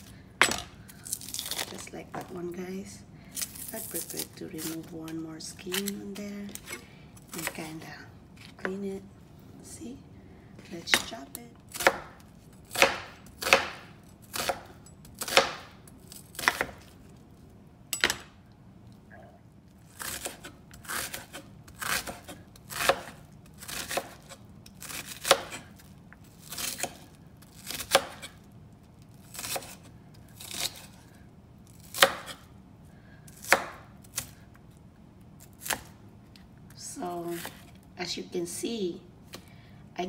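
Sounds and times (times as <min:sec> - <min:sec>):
knife chopping on wooden board: 0:11.8 - 0:12.1, 0:12.7 - 0:15.7, 0:16.4 - 0:16.9, 0:27.7 - 0:28.3, 0:31.9 - 0:32.4.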